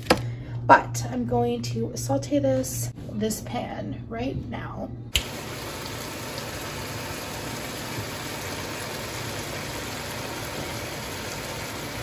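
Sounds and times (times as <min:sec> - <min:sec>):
sausage sizzling in a frying pan: 0:05.2 - 0:12.0.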